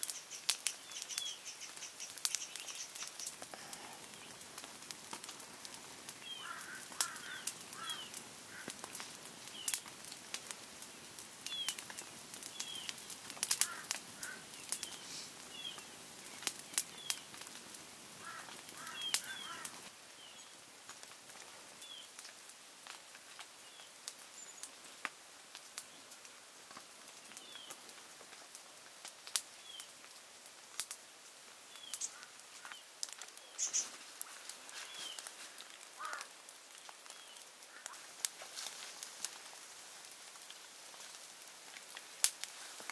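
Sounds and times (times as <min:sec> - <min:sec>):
small birds chirping: 0:00.0 - 0:09.9, 0:11.1 - 0:17.5, 0:18.2 - 0:20.6, 0:23.6 - 0:25.0, 0:27.2 - 0:27.8, 0:31.7 - 0:38.2.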